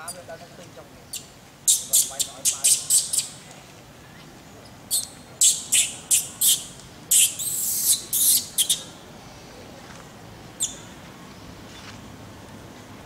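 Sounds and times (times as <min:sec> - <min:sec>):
high-pitched animal calls: 0:01.1 - 0:03.4, 0:04.9 - 0:08.9.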